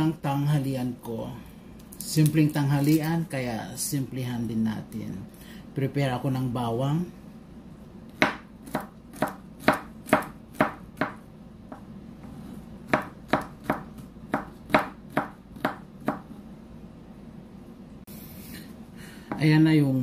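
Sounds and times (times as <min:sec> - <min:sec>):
knife chopping on wooden board: 0:08.2 - 0:11.9, 0:12.9 - 0:16.3.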